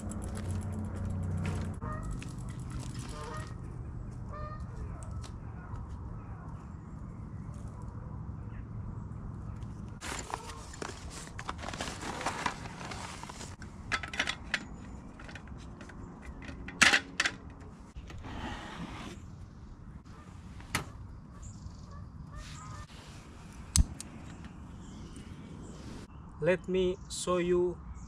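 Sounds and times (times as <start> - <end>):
nylon bag rustling: 10.0 - 13.6.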